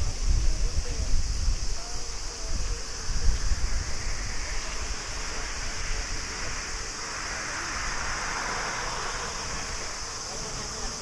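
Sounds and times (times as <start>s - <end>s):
wind buffeting the microphone: 0.0s - 11.0s
jet engines at taxi power: 0.1s - 11.0s.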